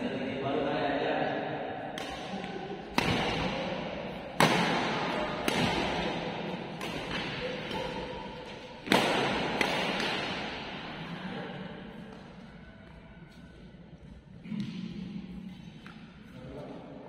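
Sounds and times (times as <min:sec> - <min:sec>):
rackets hitting shuttlecock: 0:01.9 - 0:11.0.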